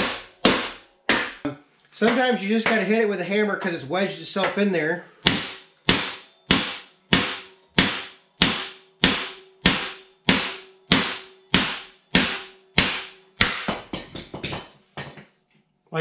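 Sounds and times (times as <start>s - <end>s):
hammer striking metal: 0.0s - 3.0s, 4.4s - 15.3s.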